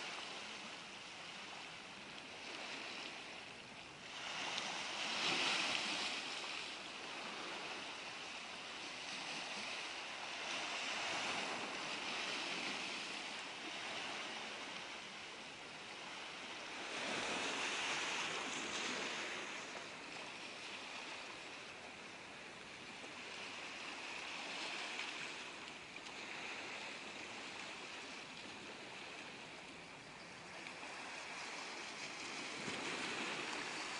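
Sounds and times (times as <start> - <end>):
waves washing over pebbles: 0.0 - 33.9.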